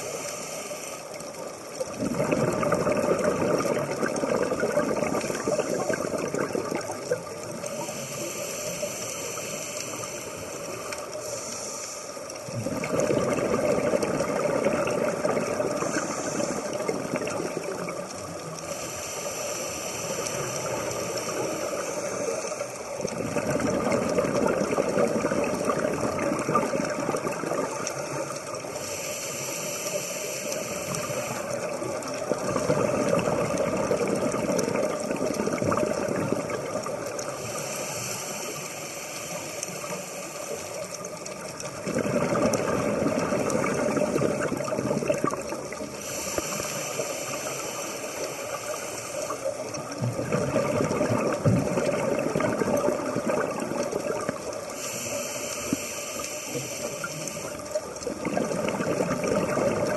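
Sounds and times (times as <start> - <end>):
regulator inhalation hiss: 0.0 - 1.8, 4.6 - 12.6, 15.2 - 23.8, 26.4 - 33.1, 36.4 - 41.8, 43.2 - 50.1, 53.0 - 58.3
exhaled bubbles burbling: 1.6 - 8.2, 12.4 - 19.0, 20.2 - 28.8, 30.6 - 37.8, 40.6 - 55.8, 56.6 - 59.9.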